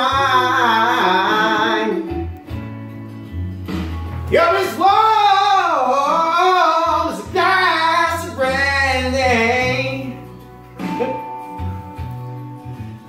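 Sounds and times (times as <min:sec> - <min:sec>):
man singing loudly: 0:00.0 - 0:02.1, 0:04.3 - 0:10.2
recorded country song: 0:00.0 - 0:13.0.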